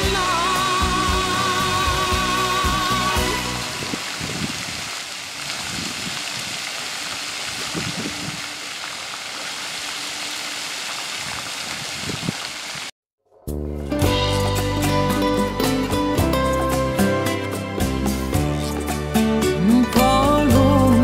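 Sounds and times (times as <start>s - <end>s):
fountain water splashing: 1.5s - 12.9s.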